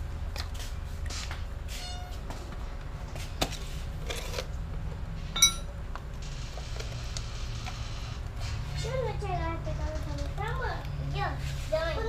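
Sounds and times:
sharp metal clink: 5.4s - 5.7s.

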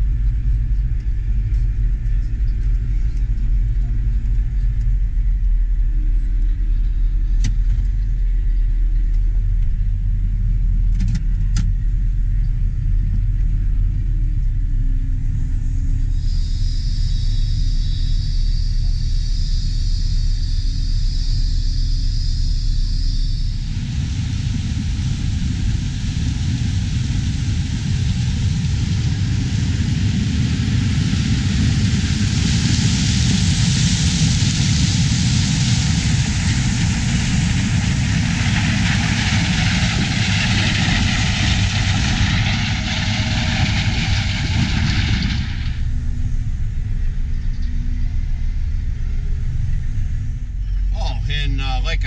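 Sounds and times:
combine harvester low rumble: 0.0s - 52.0s
loud hiss: 15.9s - 47.0s.

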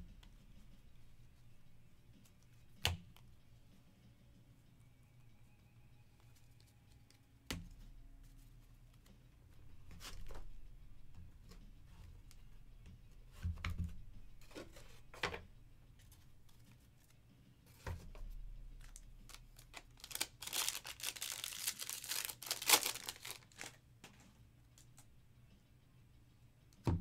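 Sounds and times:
wrapper crinkling and tearing: 18.8s - 23.8s.

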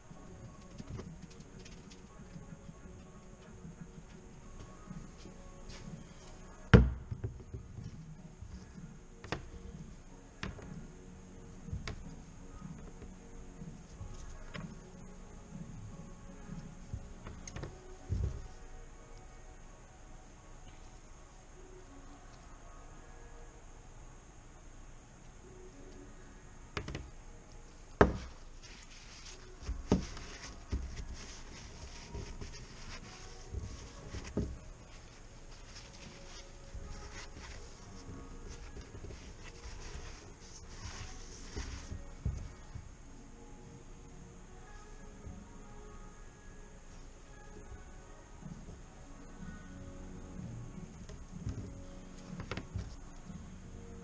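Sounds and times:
paper towel rustling: 28.2s - 42.7s.

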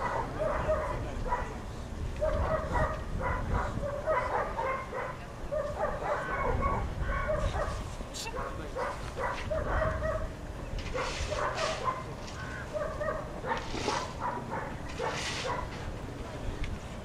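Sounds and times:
dog barking and yelping: 0.0s - 1.6s, 2.2s - 10.3s, 10.9s - 15.7s
wind on microphone: 0.0s - 8.1s, 9.0s - 11.6s.

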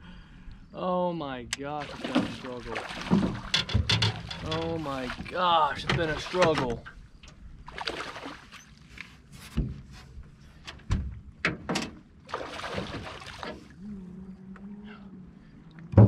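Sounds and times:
water splashing: 1.8s - 6.8s, 7.6s - 8.6s, 12.2s - 13.8s.

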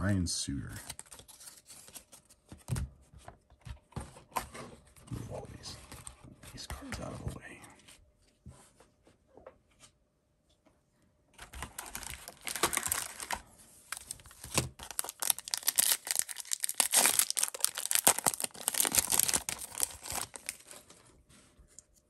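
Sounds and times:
foil wrapper tearing and crinkling: 11.6s - 21.0s.

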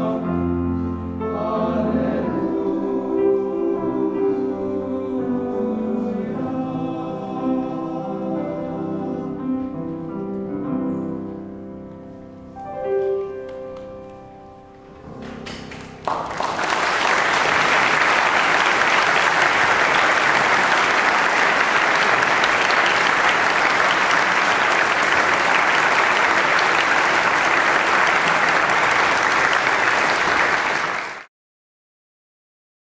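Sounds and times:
audience applauding: 15.4s - 31.3s.

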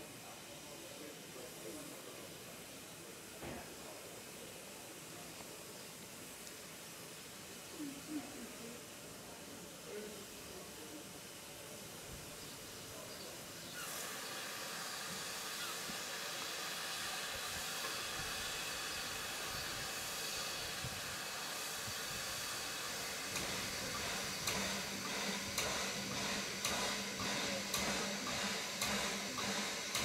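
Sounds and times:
steam locomotive hissing: 0.0s - 30.0s.

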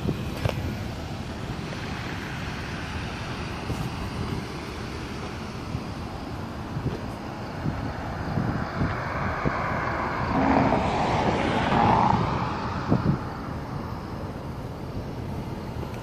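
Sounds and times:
wind rumbling on microphone: 0.0s - 16.0s
vehicle passing: 7.6s - 13.8s.

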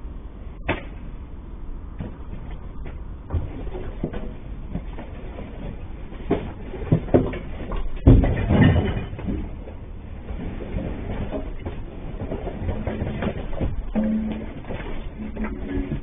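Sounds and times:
clatter of knocks: 2.0s - 16.0s
brief steady tone: 14.0s - 14.6s.

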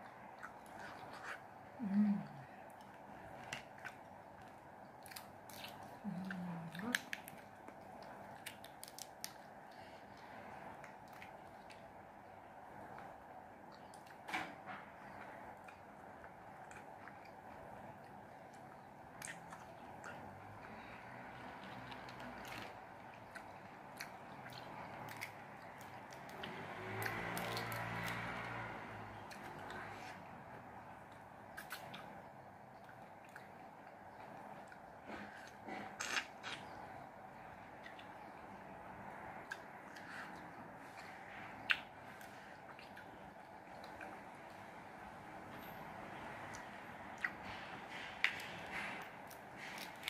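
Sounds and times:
close-up chewing: 0.0s - 14.3s, 14.9s - 50.0s
person humming: 1.8s - 2.5s.

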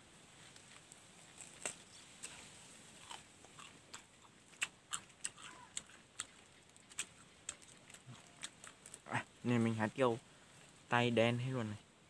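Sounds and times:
person chewing crisp fruit: 0.4s - 9.6s.

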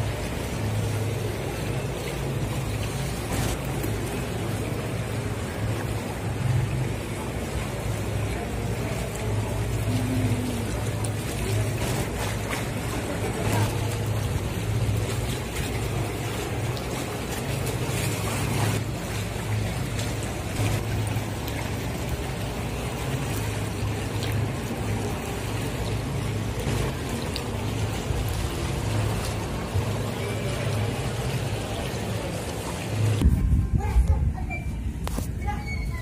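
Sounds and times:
wind buffeting microphone: 33.2s - 36.0s.

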